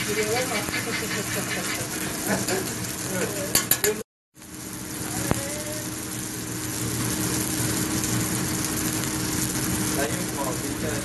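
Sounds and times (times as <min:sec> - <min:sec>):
eggs sizzling on a griddle: 0:00.0 - 0:11.0
low machine hum: 0:04.4 - 0:11.0.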